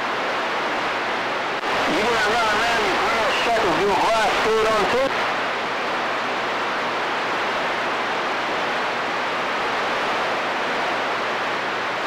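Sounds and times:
radio static hiss: 0:00.0 - 0:12.0.

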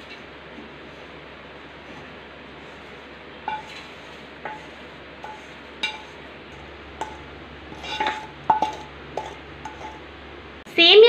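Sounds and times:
spatula clinking on metal pan: 0:03.4 - 0:03.7, 0:04.4 - 0:06.2, 0:07.0 - 0:10.0.

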